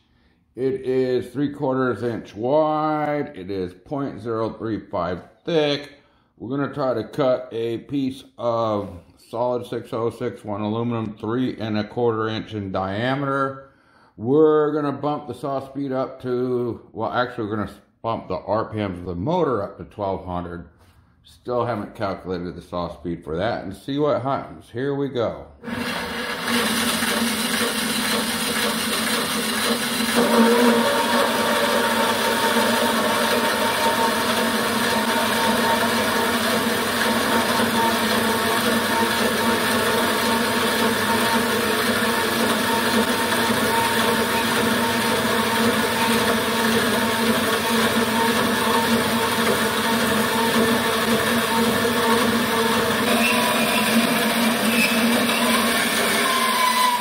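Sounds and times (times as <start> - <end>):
band saw cutting aluminum: 25.6 - 57.0.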